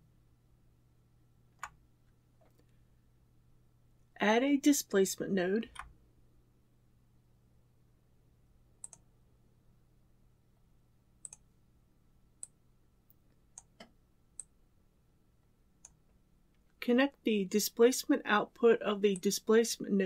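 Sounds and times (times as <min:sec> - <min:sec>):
low steady hum: 0:00.0 - 0:20.0
computer mouse clicks: 0:08.8 - 0:09.0, 0:11.2 - 0:11.5, 0:13.5 - 0:14.5.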